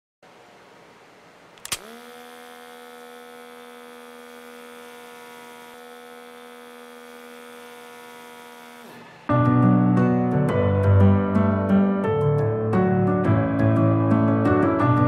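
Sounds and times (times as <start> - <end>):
small motor humming: 1.6 - 9.3.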